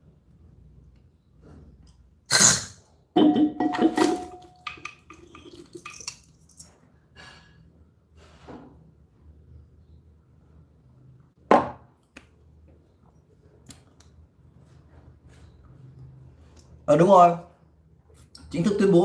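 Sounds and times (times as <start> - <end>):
glass ringing: 3.2 - 5.6
glass and objects clinking: 3.2 - 6.7.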